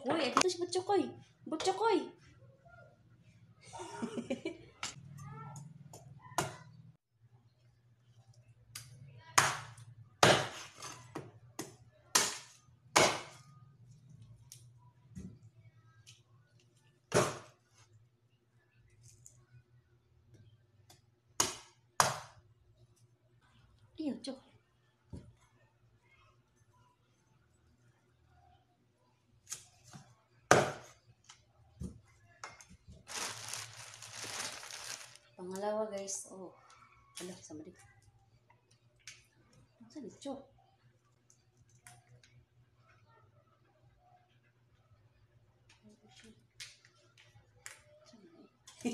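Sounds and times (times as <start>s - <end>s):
plastic bag rustling: 33.0s - 35.4s.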